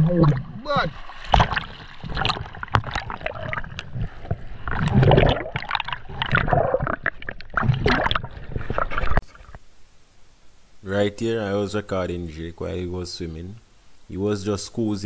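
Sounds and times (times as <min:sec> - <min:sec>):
seawater splashing and gurgling: 0:00.0 - 0:09.6.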